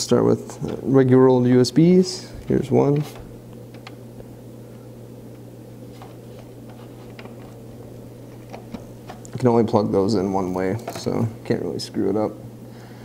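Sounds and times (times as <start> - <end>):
low background hum: 0.0 - 13.0
cable clicks and rustles: 2.4 - 4.3, 5.3 - 9.6.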